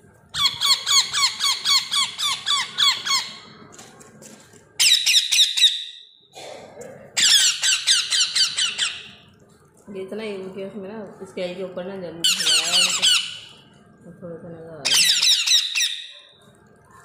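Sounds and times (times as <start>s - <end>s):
parrot chicks squeaky begging calls: 0.3s - 3.5s, 4.8s - 6.0s, 7.2s - 9.2s, 12.3s - 13.6s, 14.8s - 16.4s.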